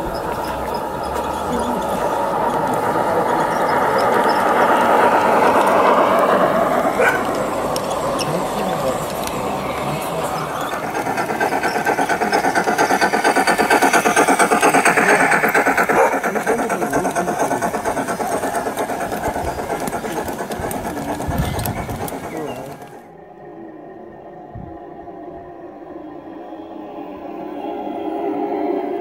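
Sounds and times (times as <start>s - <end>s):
model train wheels rattling: 0.0s - 23.0s.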